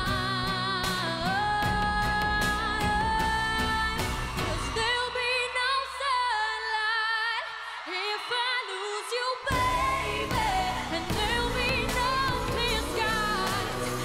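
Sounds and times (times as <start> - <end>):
live band playing: 0.0 - 4.9, 9.6 - 14.0
woman singing pop ballad: 0.0 - 14.0.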